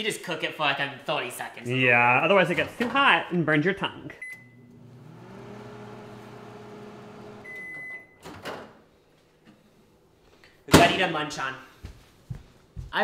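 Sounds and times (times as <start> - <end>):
microwave keypad beep: 4.2 - 4.8, 7.4 - 8.2
microwave oven humming: 4.3 - 7.8.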